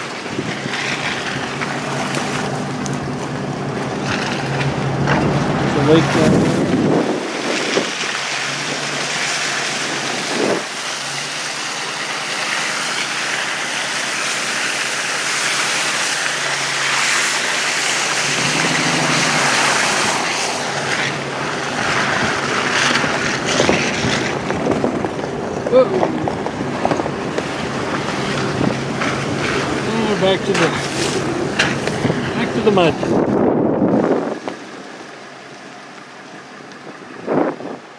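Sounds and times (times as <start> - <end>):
wind on microphone: 0.0 - 2.5, 4.0 - 9.1, 9.8 - 10.8, 18.0 - 29.9, 30.8 - 34.7, 36.8 - 37.9
low truck engine: 0.0 - 37.9
tyres rushing through slush: 0.0 - 37.9.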